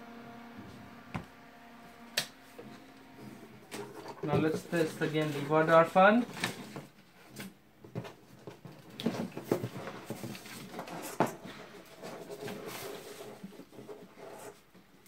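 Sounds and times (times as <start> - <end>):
foam panel rubbing and creaking: 3.2 - 6.3, 9.0 - 14.7.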